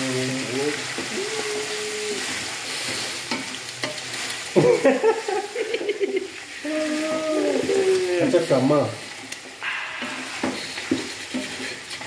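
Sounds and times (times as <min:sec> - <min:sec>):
pitched vocal sound: 0:00.0 - 0:02.3, 0:06.6 - 0:08.2
meat sizzling in a pot: 0:00.0 - 0:12.0
wooden spoon scraping pot: 0:10.0 - 0:12.0.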